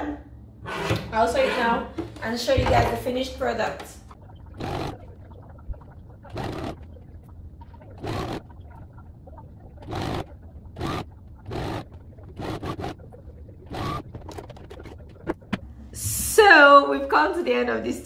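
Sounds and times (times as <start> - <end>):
steady low hum: 0.0 - 18.0
sewing machine stitching: 4.6 - 5.0, 6.3 - 6.8, 8.0 - 8.4, 9.8 - 13.0, 13.7 - 14.9.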